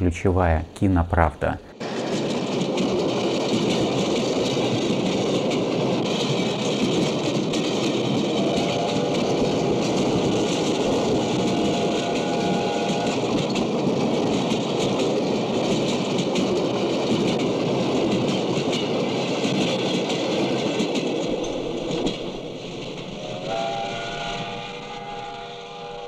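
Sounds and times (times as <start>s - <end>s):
train rumbling over bridge: 0.0s - 26.0s
steam whistle: 8.3s - 9.2s, 10.9s - 13.3s, 23.2s - 26.0s.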